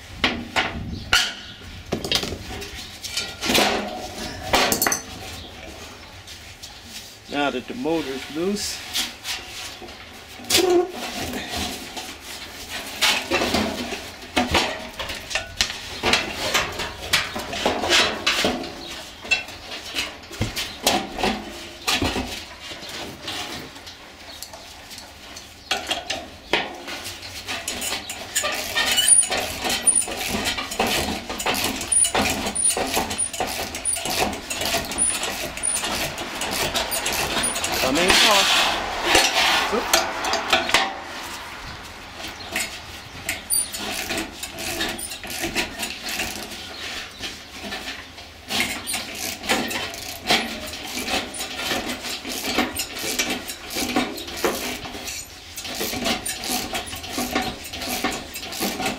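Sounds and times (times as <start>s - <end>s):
ratchet wrench and metal clicking: 27.5s - 38.4s, 42.6s - 46.6s, 48.5s - 58.9s
short high squeaks: 27.8s - 30.6s, 31.4s - 39.8s, 42.3s - 46.4s.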